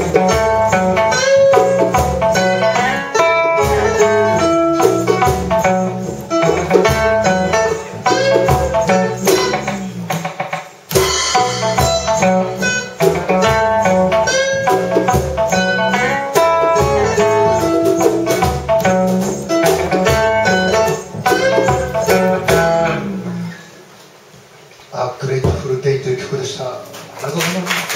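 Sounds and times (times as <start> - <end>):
upright bass: 0.0 - 10.2, 10.9 - 23.6
light percussion: 0.0 - 23.1
acoustic guitar: 0.0 - 23.8.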